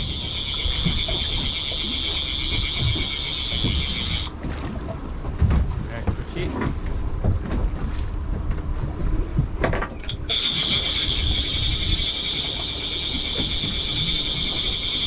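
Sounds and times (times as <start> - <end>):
steady high-pitched whine: 0.0 - 4.3, 10.1 - 15.0
outboard boat motor running: 0.0 - 15.0
wind on microphone: 0.0 - 15.0.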